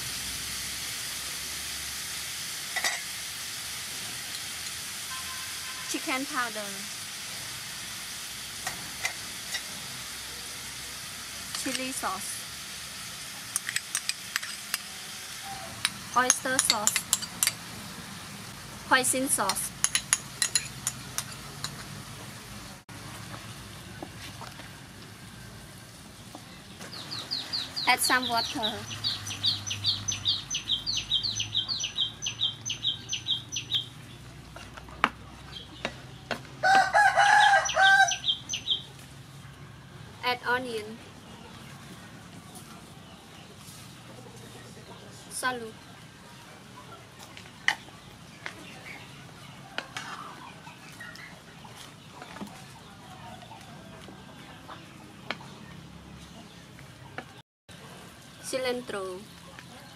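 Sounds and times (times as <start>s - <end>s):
spatula stirring food in a pan: 8.4s - 18.1s, 19.3s - 22.4s, 47.2s - 51.0s
bird chirping rapidly: 26.6s - 34.2s, 37.4s - 38.9s
rooster crowing: 36.6s - 38.4s
chickens clucking: 41.1s - 58.1s.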